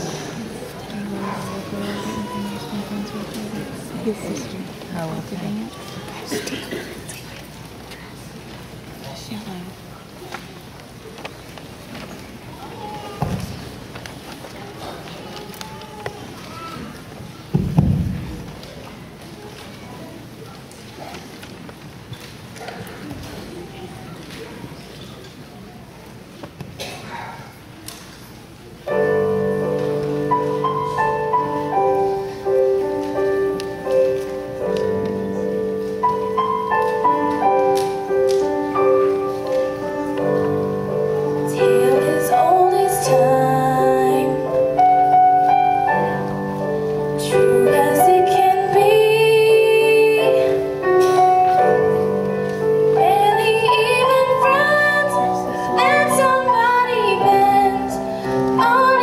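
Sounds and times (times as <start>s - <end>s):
girl singing: 41.3s - 44.7s, 47.2s - 50.8s, 52.9s - 59.0s.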